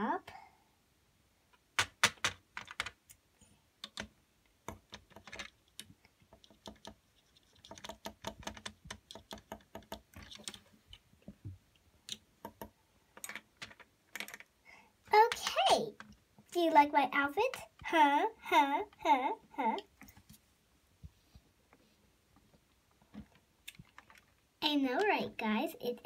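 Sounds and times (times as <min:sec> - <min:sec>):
plastic toy bricks clicking: 0:01.8 - 0:03.2, 0:03.8 - 0:11.0, 0:12.1 - 0:14.5.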